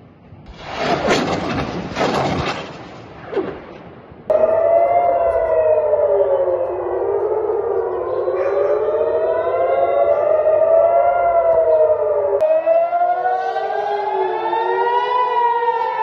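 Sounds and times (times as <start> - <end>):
air-raid sirens wailing: 4.3 - 16.0.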